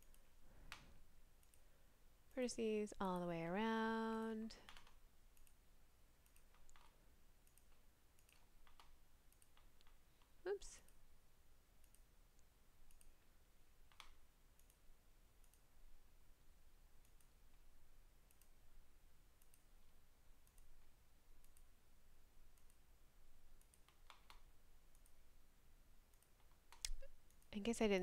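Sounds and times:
computer mouse clicks: 0:00.0 - 0:01.7, 0:04.6 - 0:05.6, 0:06.2 - 0:11.0, 0:11.8 - 0:14.8, 0:15.4 - 0:15.7, 0:17.0 - 0:17.6, 0:18.2 - 0:18.6, 0:19.4 - 0:19.8, 0:20.4 - 0:21.7, 0:22.5 - 0:22.8, 0:23.6 - 0:25.2, 0:26.1 - 0:27.5.

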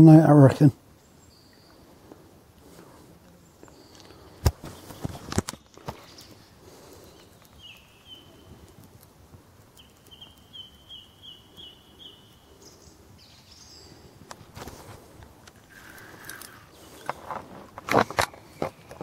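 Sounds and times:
bird calling: 0:03.3 - 0:08.7, 0:09.7 - 0:14.2
rustling: 0:14.3 - 0:19.0.

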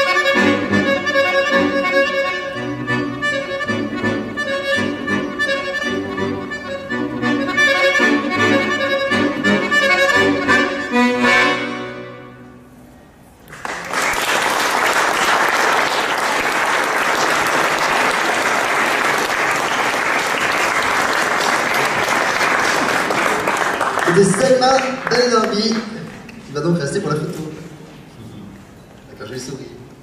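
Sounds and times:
accordion playing: 0:00.0 - 0:12.8
audience applause: 0:13.5 - 0:26.2.

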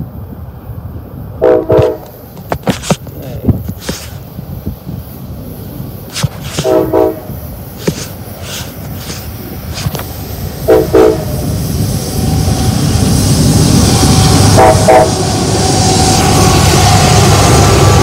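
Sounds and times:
locomotive engine and wheel rumble: 0:00.0 - 0:18.0
train horn blasts: 0:01.4 - 0:02.2, 0:06.5 - 0:07.4, 0:10.6 - 0:11.5, 0:14.0 - 0:16.7.

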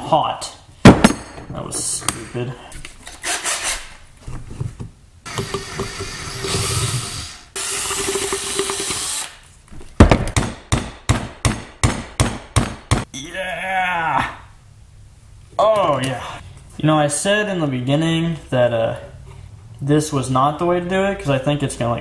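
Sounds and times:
cordless drill boring into plastic: 0:05.3 - 0:09.4.

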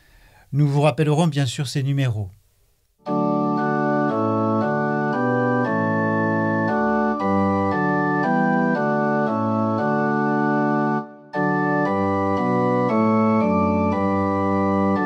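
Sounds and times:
organ playing a hymn: 0:03.0 - 0:15.0.

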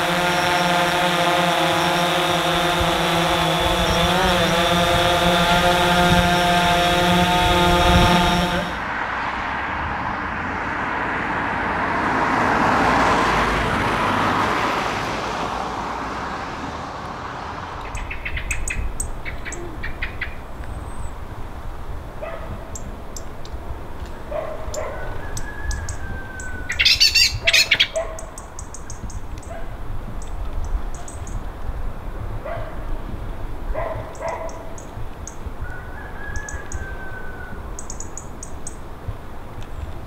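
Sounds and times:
small birds chirping: 0:00.0 - 0:01.1, 0:01.8 - 0:08.8, 0:17.8 - 0:21.6, 0:22.4 - 0:23.5, 0:24.1 - 0:31.5, 0:33.8 - 0:35.7, 0:36.3 - 0:36.9, 0:37.5 - 0:38.9.

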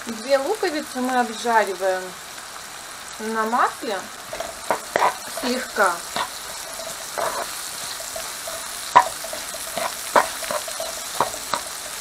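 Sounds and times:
onion sizzling in oil: 0:00.0 - 0:12.0
spatula scraping and knocking pan: 0:04.3 - 0:12.0.

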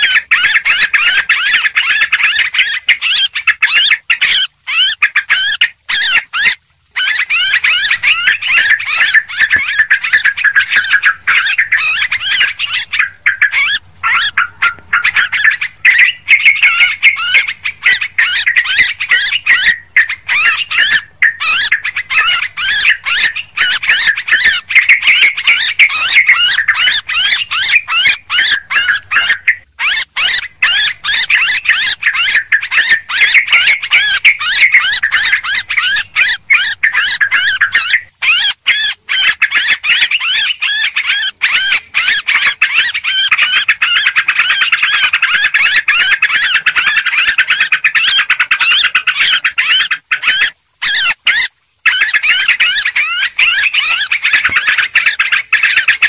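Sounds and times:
bulbuls chirping and whistling: 0:00.0 - 0:56.0.

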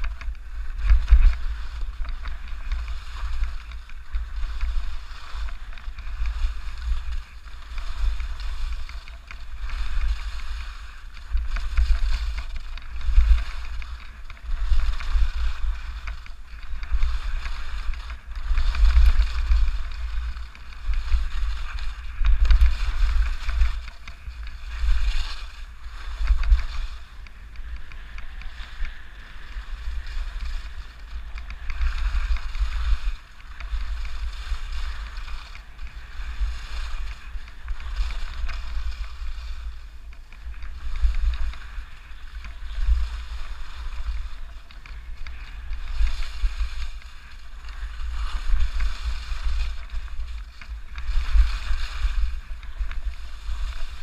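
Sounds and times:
skis hissing over snow: 0:00.0 - 0:54.0
wind buffeting microphone: 0:00.0 - 0:54.0.

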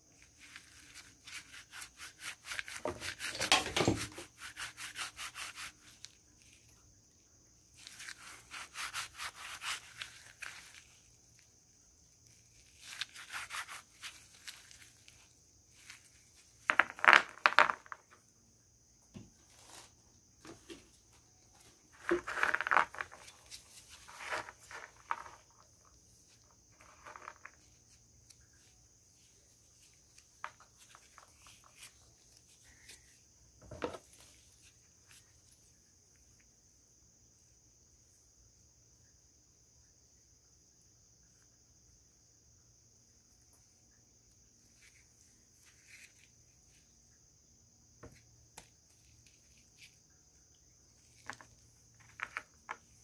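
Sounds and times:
mothballs scraping in gloved hands: 0:00.2 - 0:06.7, 0:07.8 - 0:11.4, 0:12.2 - 0:18.2, 0:21.9 - 0:35.4.

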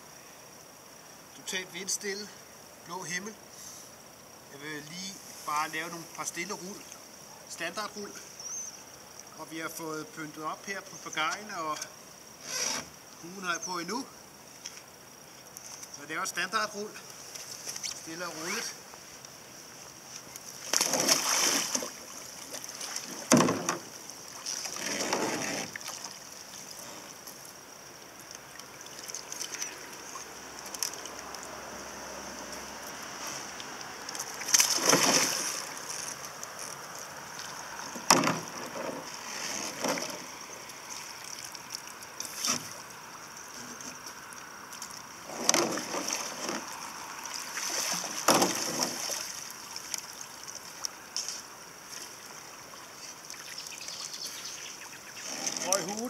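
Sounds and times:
water gently lapping: 0:17.0 - 0:56.0
paddle sweeping water: 0:19.8 - 0:56.0
water splashing around kayak: 0:20.0 - 0:56.0.

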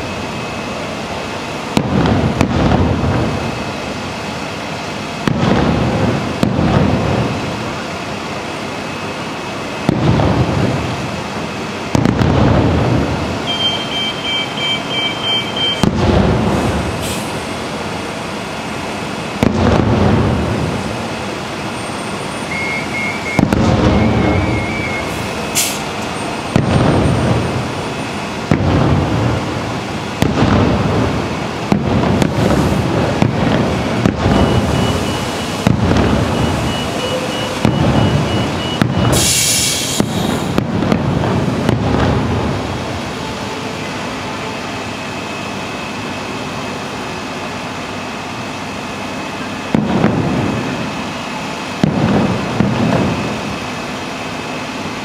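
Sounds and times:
fireworks bursting with booms: 0:01.3 - 0:14.6, 0:15.4 - 0:21.7, 0:22.5 - 0:45.2, 0:49.0 - 0:55.0.

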